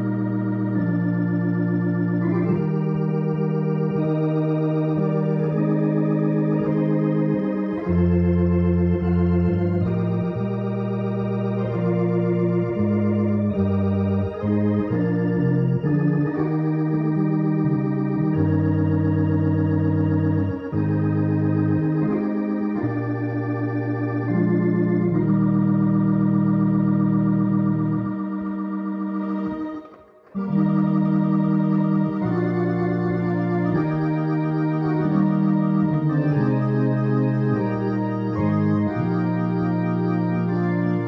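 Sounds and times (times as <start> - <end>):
electronic organ chords: 0.0 - 41.0.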